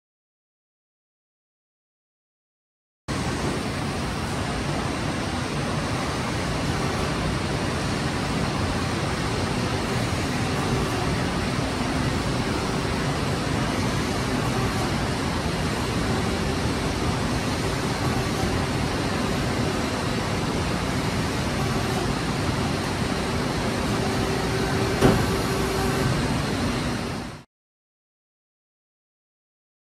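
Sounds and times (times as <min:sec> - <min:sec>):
machine shop hum: 0:03.1 - 0:27.5
sharp knock: 0:25.0 - 0:25.4.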